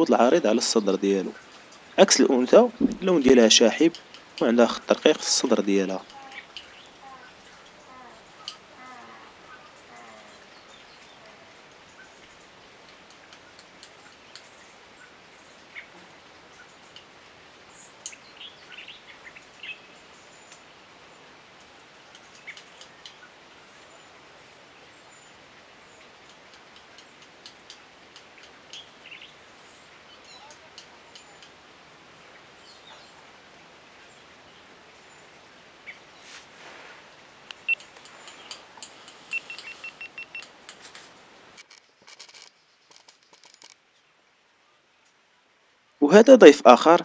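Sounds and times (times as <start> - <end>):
background hiss: 0.0 - 47.0
bird chirps and calls: 2.7 - 12.3, 30.1 - 31.5, 37.6 - 40.4
sharp clicks: 37.5 - 41.0, 41.6 - 43.8.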